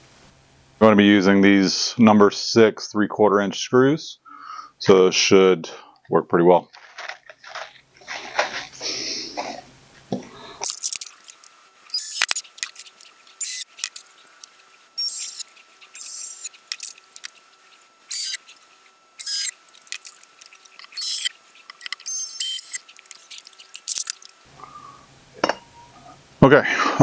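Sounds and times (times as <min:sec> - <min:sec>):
cordless drill whirring: 0:13.4 - 0:14.1, 0:15.0 - 0:17.3, 0:18.1 - 0:18.5, 0:19.2 - 0:20.2, 0:20.8 - 0:22.8.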